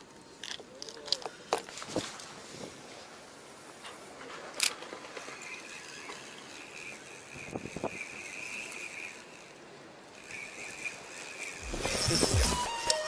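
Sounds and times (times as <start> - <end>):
reel click: 3.8 - 13.0
fishing reel whirring: 4.0 - 13.0.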